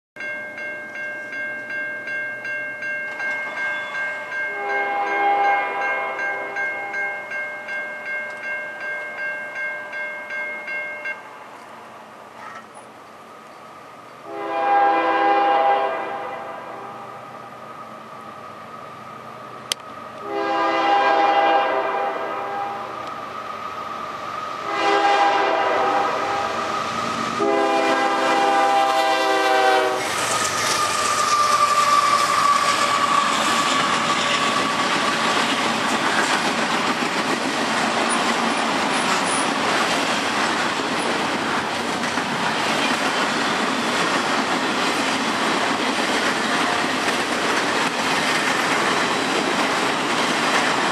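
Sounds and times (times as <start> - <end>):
train passing on rails: 0.2 - 50.9
locomotive air horn: 4.5 - 6.6, 14.2 - 17.2, 20.2 - 23.0, 24.6 - 35.1.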